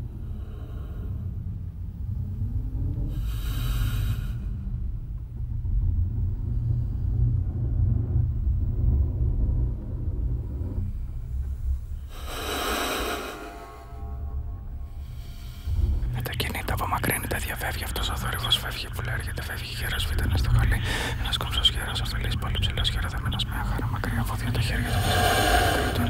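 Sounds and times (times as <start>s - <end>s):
deep electronic rumble: 0.0s - 26.0s
loud rushing hisses: 12.1s - 14.0s, 24.0s - 26.0s.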